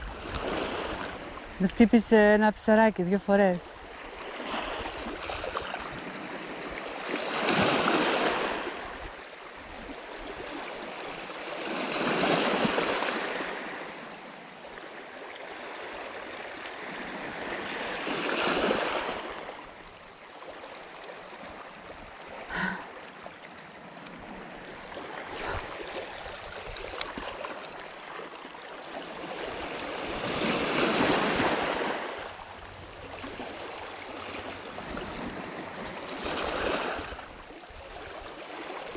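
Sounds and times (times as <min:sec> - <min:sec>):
waves washing over pebbles: 0:03.4 - 0:09.1, 0:24.2 - 0:37.3.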